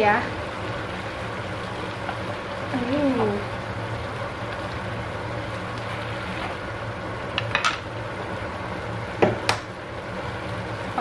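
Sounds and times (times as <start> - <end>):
noodles sizzling in a wok: 0.0 - 11.0
sharp knock on pan: 9.2 - 9.6.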